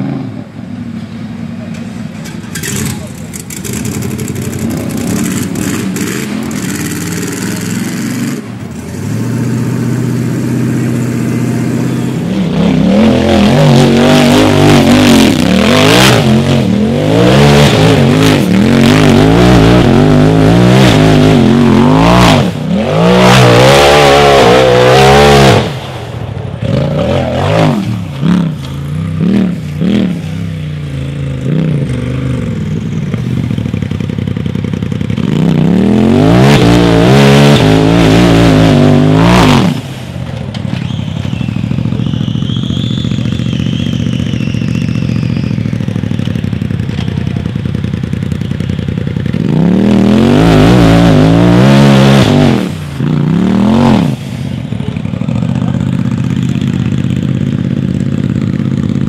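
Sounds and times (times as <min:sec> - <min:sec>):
engine revving: 0:02.5 - 0:33.4, 0:34.9 - 0:40.1, 0:49.2 - 0:54.5.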